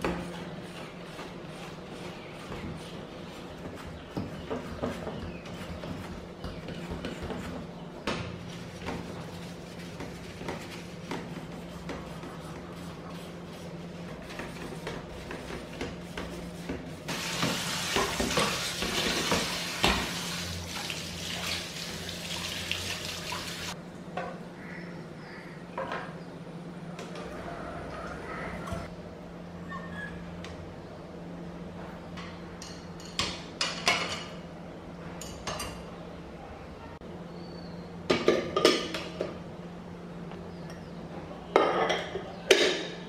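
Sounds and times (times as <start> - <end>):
kitchen tap running: 17.1 - 23.8.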